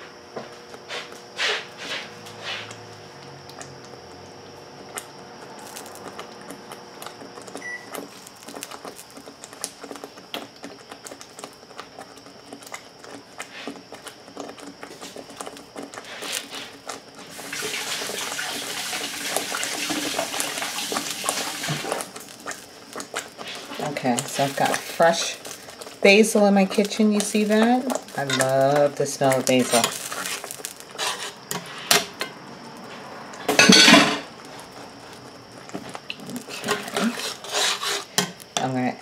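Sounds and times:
sauce popping and spattering: 4.9 - 26.0, 26.7 - 32.4, 33.5 - 38.6
kitchen tap running: 17.3 - 22.1.

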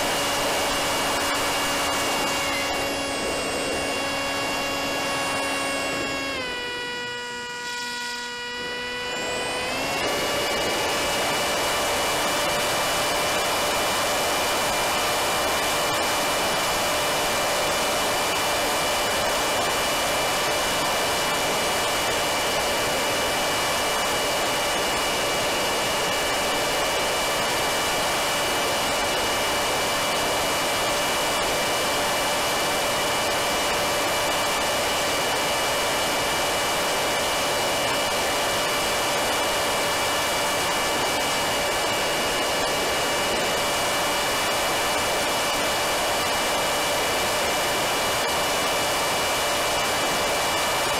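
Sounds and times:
electric motor whine: 0.0 - 50.9.

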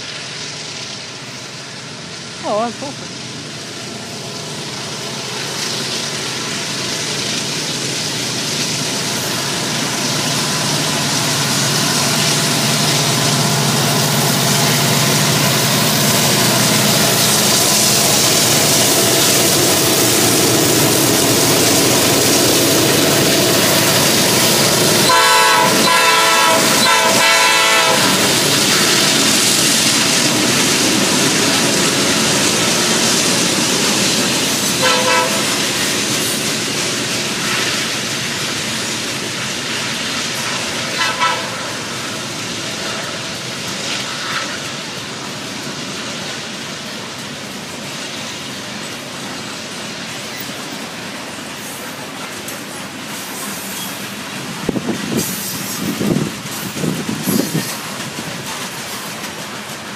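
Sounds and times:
diesel locomotive engine: 0.0 - 59.9
train wheels rumbling: 0.0 - 59.9
train air horn blasts: 25.0 - 28.2, 34.8 - 35.6, 40.9 - 41.7.

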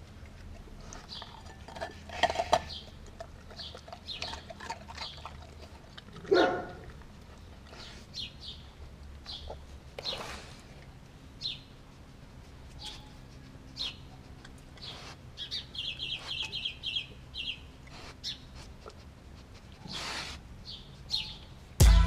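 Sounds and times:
dog chewing and licking: 0.0 - 20.0.

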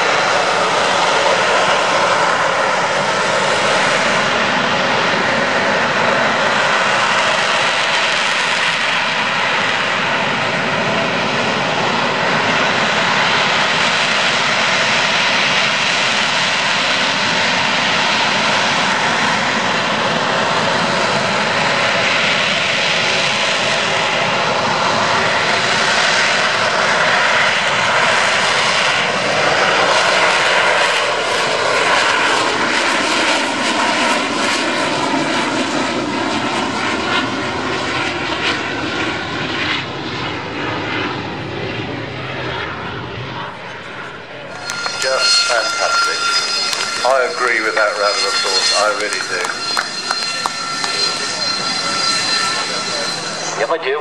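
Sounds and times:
jet engine roar: 0.0 - 54.0.

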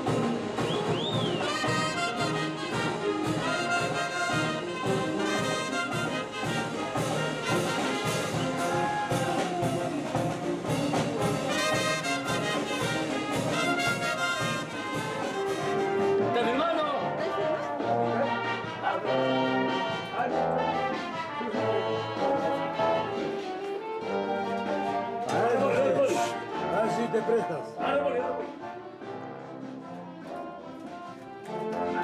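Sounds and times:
bass drum and cymbal beat: 0.0 - 16.2
trumpets and saxophones melody: 0.0 - 32.0.

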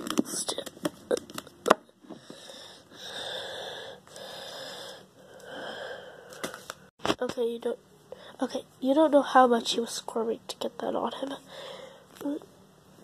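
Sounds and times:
person breathing noisily: 2.1 - 6.7, 11.5 - 12.1.

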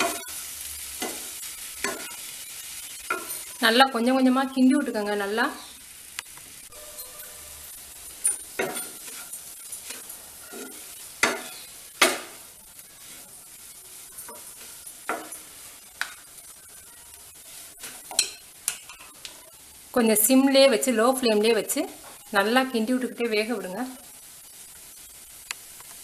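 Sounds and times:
soft steady sizzle: 0.0 - 26.0
wooden spatulas scraping frying pan: 6.7 - 12.4.

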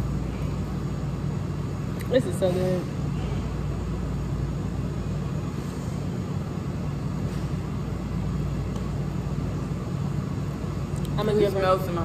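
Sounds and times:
low mechanical hum and rumble: 0.0 - 12.0.

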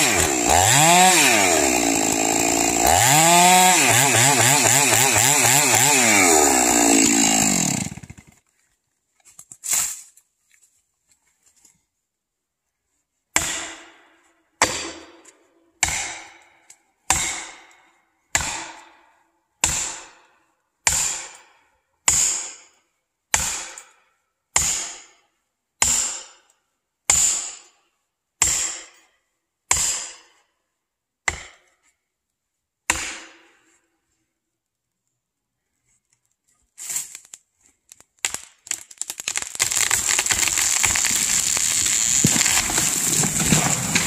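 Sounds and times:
hammer striking wedge: 32.9 - 33.4.

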